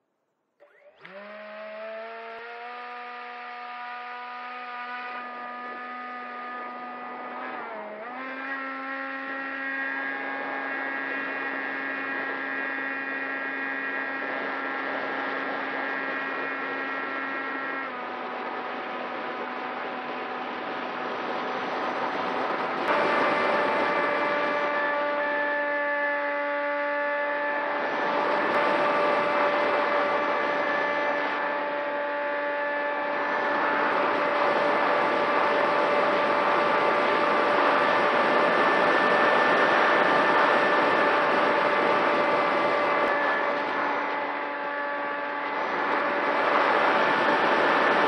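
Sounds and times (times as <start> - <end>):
electric motor hum: 0.6 - 48.0
rushing air noise: 45.4 - 48.0.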